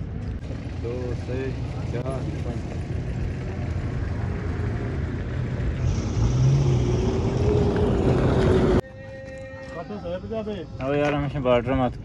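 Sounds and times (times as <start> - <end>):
vehicle engine running: 0.0 - 8.8.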